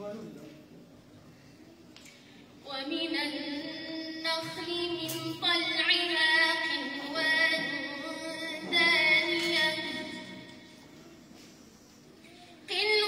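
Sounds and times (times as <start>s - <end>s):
woman reciting melodically: 2.1s - 11.0s, 12.2s - 13.0s.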